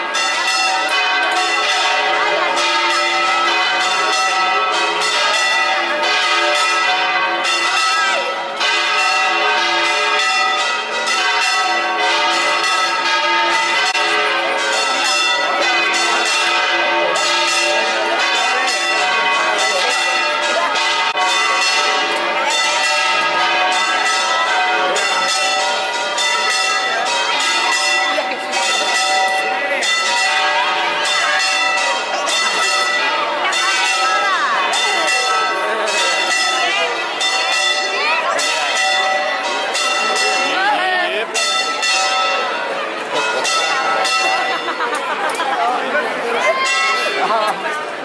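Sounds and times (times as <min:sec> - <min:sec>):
church bells pealing: 0:00.0 - 0:48.0.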